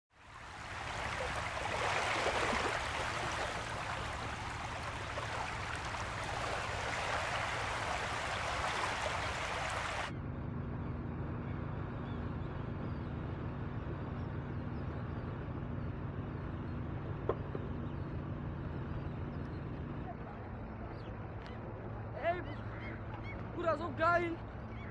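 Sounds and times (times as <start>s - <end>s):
boat engine humming: 0.1s - 10.1s, 11.1s - 24.9s
waves lapping on a pebble beach: 0.2s - 10.1s.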